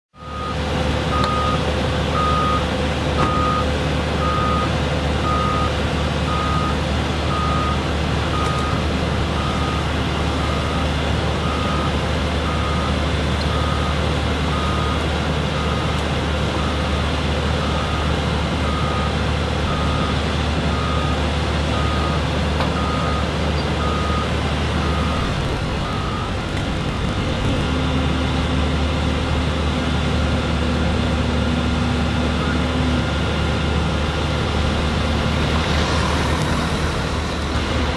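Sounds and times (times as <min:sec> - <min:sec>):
heavy machine humming: 0:00.2 - 0:37.9
backup alarm beeping: 0:23.8 - 0:28.0.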